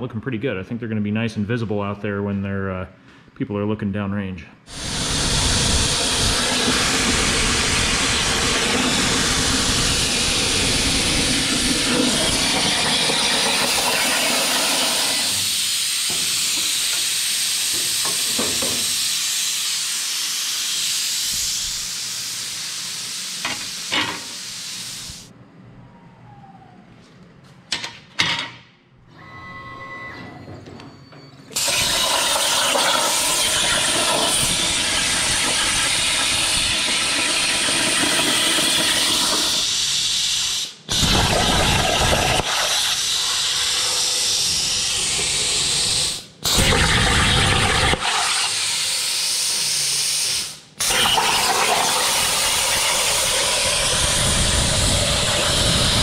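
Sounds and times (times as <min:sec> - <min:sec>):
plasma torch hissing: 0:04.7 - 0:25.3, 0:31.6 - 0:56.0.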